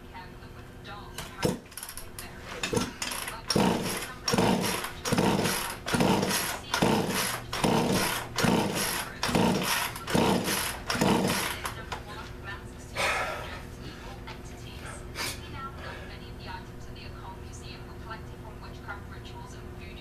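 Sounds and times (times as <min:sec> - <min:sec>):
chainsaw engine turning over: 0:01.2 - 0:11.9
chainsaw recoil starter rope pulls: 0:01.4 - 0:11.8.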